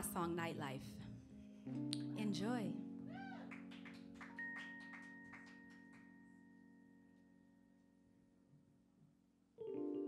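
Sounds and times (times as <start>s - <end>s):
held keyboard chord: 1.2s - 8.6s, 9.6s - 10.0s.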